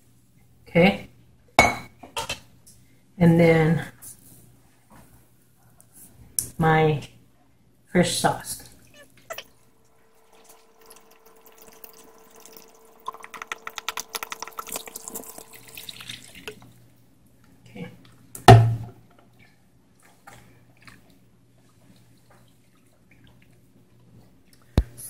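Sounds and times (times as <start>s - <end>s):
liquid glugging from bottle: 10.2s - 16.8s
loud thump: 18.5s - 19.0s
wet squishing of mixture: 19.4s - 24.6s.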